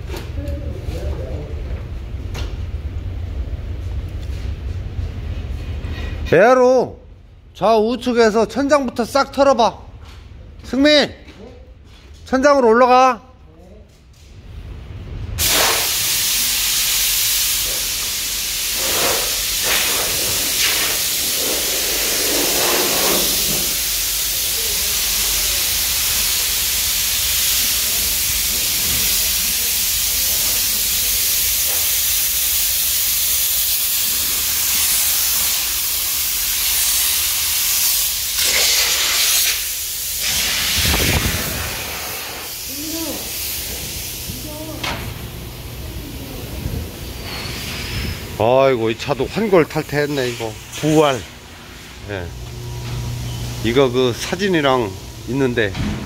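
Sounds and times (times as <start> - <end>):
compressed air blow gun hissing: 15.4 - 44.6, 47.1 - 48.4.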